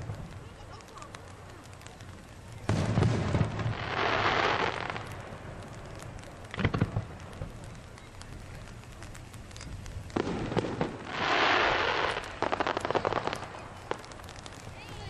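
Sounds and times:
firework crackling hiss: 0.0s - 15.0s
sharp firework bangs: 2.6s - 7.7s, 10.1s - 15.0s.

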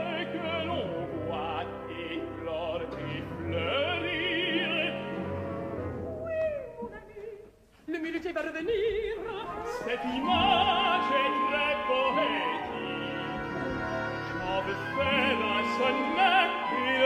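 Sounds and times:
orchestra playing: 0.0s - 6.3s, 9.6s - 17.0s
tenor singing opera: 0.0s - 17.0s
mezzo-soprano singing opera: 6.2s - 17.0s.

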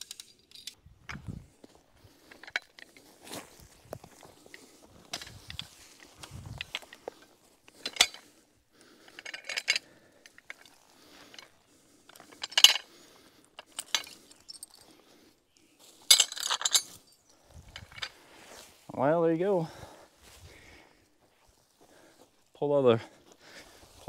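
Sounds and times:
steel chain clinking and rattling: 0.0s - 0.8s, 2.2s - 3.1s, 4.5s - 8.3s, 9.0s - 12.9s, 13.6s - 14.9s, 16.0s - 18.2s.

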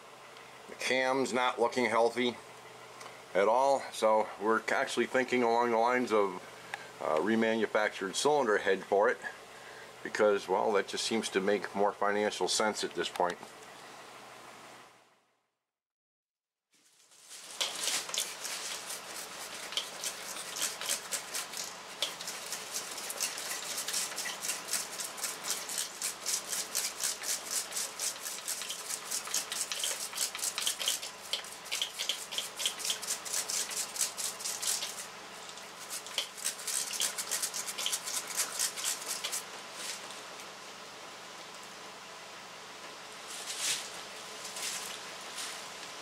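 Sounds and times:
stiff brush scrubbing metal: 17.3s - 39.5s.

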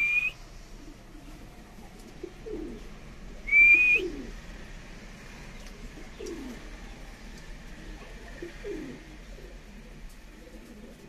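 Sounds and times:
pigeon cooing: 2.2s - 2.9s, 3.5s - 4.4s, 6.0s - 6.7s, 8.3s - 11.0s.

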